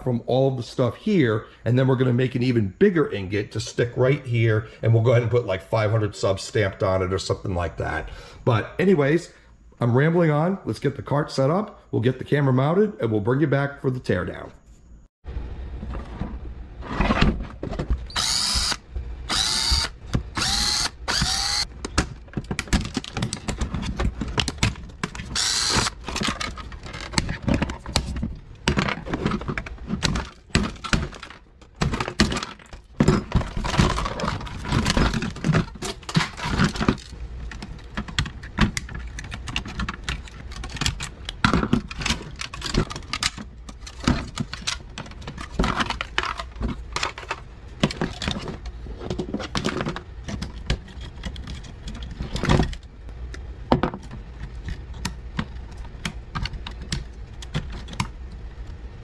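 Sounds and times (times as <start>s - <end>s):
cordless drill whining: 18.1s - 21.7s, 25.4s - 25.9s
plastic clatter: 21.2s - 52.9s.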